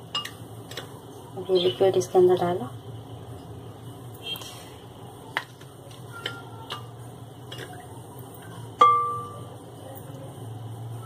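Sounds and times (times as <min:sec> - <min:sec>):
kitchenware clicks and taps: 0:05.3 - 0:07.8.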